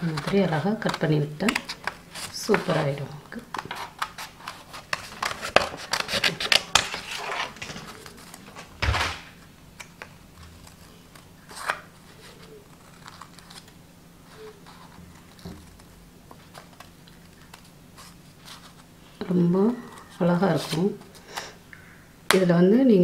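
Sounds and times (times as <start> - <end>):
scissors scraping paper: 3.6 - 8.4.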